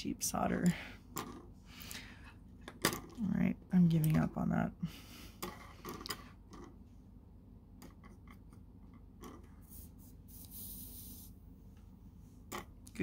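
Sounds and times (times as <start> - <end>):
soft rubbing hiss: 9.5 - 12.4.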